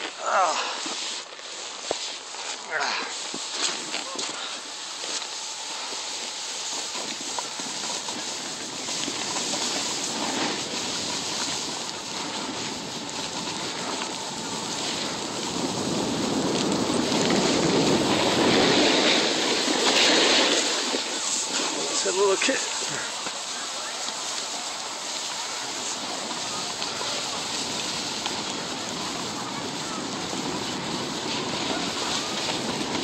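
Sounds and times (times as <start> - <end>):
snowboard sliding over snow: 0.0 - 33.0
wind on microphone: 6.7 - 22.0, 23.9 - 33.0.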